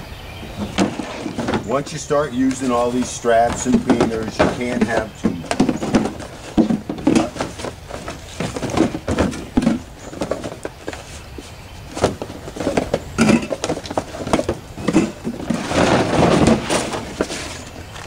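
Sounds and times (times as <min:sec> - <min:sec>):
cooler scraping across truck bed: 0:00.4 - 0:18.0
gear knocking and clattering: 0:00.8 - 0:11.0.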